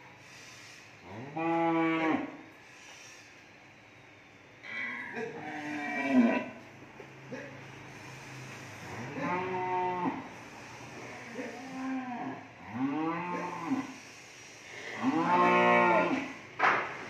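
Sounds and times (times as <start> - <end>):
cattle mooing: 1.1 - 2.4, 4.6 - 6.6, 8.8 - 10.4, 11.0 - 14.0, 14.8 - 16.4.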